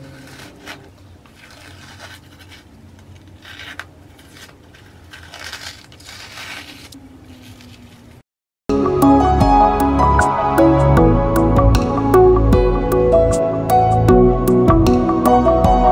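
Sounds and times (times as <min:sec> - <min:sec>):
masking tape peeling off: 0:00.0 - 0:08.0.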